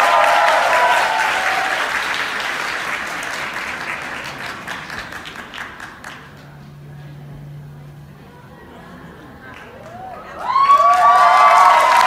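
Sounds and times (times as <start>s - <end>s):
audience applause: 0.0s - 6.7s, 9.2s - 12.0s.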